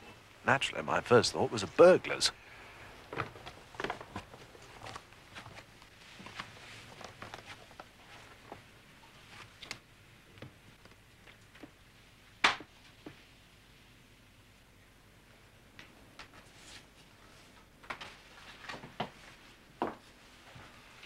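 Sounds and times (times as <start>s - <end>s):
soft footsteps: 3.0s - 8.7s.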